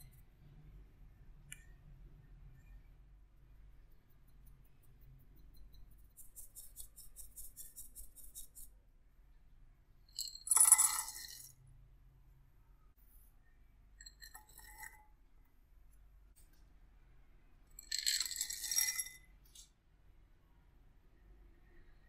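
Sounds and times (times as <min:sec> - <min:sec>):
nuts clattering into glass bowl: 0:10.2 - 0:11.5, 0:17.8 - 0:19.2
raisins clinking into bowl: 0:10.2 - 0:11.5, 0:17.8 - 0:19.2.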